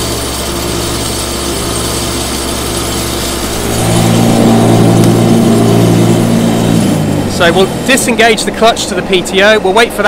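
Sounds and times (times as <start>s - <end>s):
mower blades spinning: 0.0s - 8.6s
tractor engine running: 0.0s - 10.0s.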